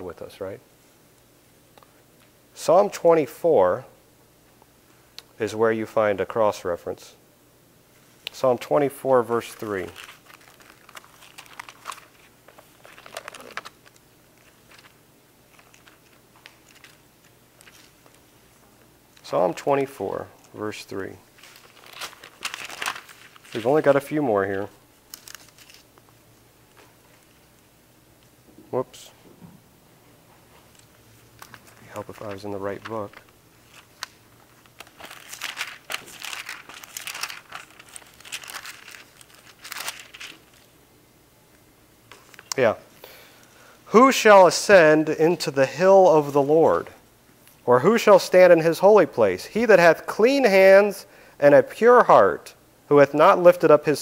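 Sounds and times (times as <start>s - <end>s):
thin pages rustling: 9.4s - 18.3s, 21.4s - 24.0s, 25.1s - 25.9s, 30.5s - 40.7s.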